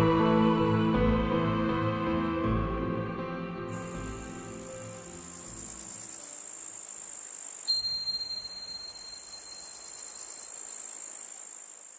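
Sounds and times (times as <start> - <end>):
soft background music: 0.0 - 7.1
crickets chirring: 3.7 - 11.9
bright chime: 7.7 - 10.7.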